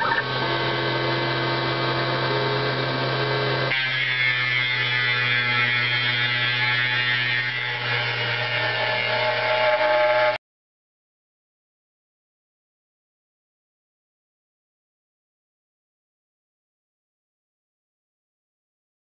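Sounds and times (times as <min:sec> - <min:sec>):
router spindle cutting plastic: 0:00.0 - 0:10.4.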